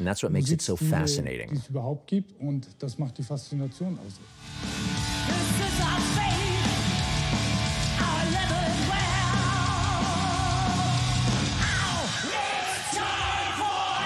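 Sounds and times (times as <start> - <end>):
heavy metal band playing: 4.5 - 12.3.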